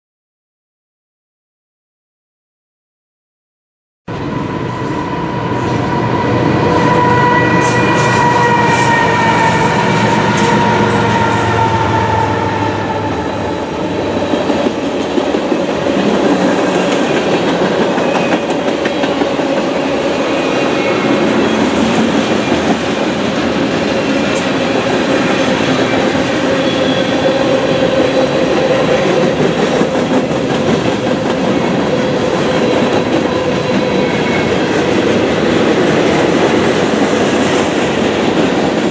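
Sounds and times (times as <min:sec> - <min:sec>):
high wheel squeal: 0:04.2 - 0:13.6, 0:25.2 - 0:28.3
train wheels rumbling and clattering: 0:04.2 - 0:38.9.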